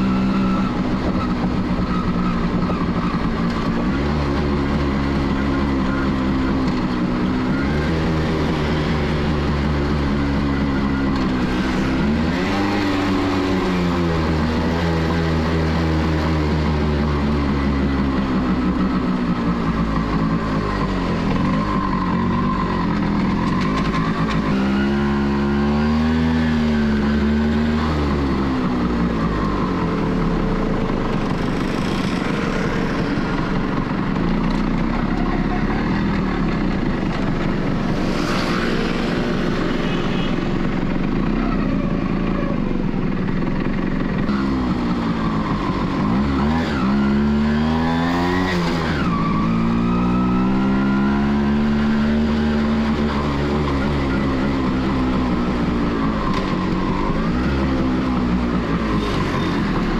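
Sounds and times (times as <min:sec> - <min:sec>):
motorcycle engine running through gears: 0:00.0 - 0:59.9
rushing road noise: 0:00.0 - 0:59.9.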